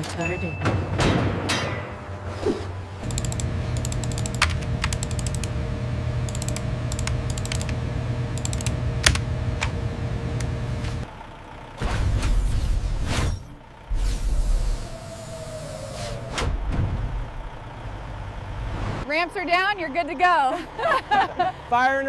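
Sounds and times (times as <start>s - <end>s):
low electrical hum: 1.8s - 11.0s
keyboard typing: 3.0s - 5.6s, 6.3s - 7.8s, 8.4s - 9.7s.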